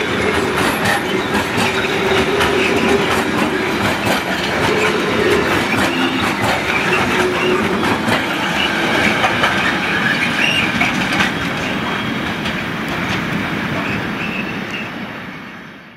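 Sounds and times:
wheels clicking over rail joints: 0:00.0 - 0:14.5
freight train rolling past: 0:00.0 - 0:15.9
wheel squeal: 0:00.6 - 0:12.2, 0:13.8 - 0:14.9.

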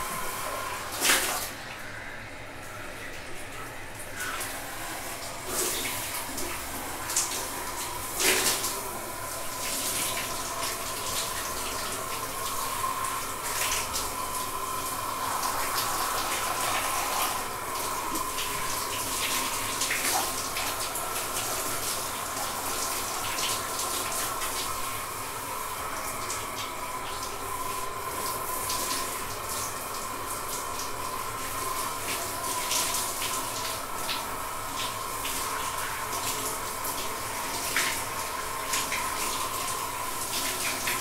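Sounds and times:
shower water running: 0:00.0 - 0:41.0.

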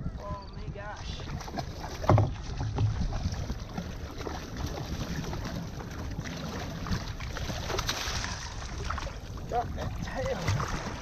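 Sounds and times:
low wind rumble on microphone: 0:00.0 - 0:11.0
water lapping against kayak hull: 0:00.0 - 0:11.0.

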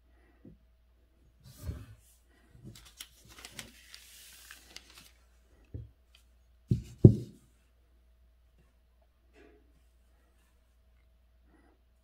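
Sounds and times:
faint rustle with small clicks: 0:02.6 - 0:06.4
dull knocks on desk: 0:06.7 - 0:07.4.

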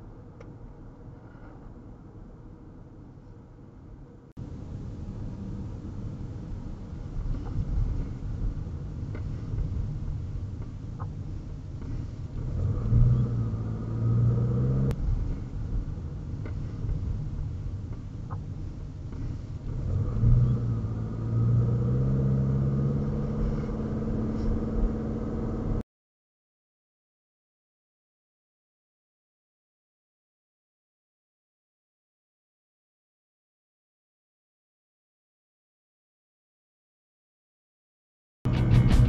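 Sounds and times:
road rumble: 0:00.0 - 0:25.8, 0:38.5 - 0:39.0
car engine from inside cabin: 0:04.1 - 0:25.8.

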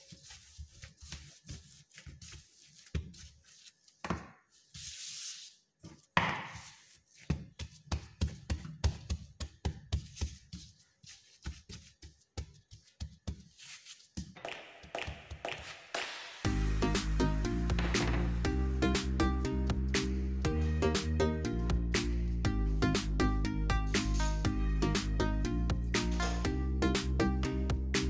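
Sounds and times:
dough thudding and slapping: 0:06.1 - 0:10.6.

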